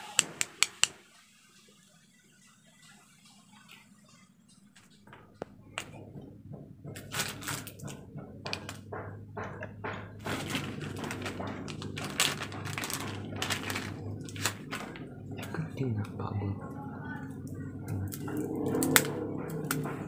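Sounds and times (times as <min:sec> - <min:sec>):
plastic packaging crinkling: 0:10.2 - 0:15.6.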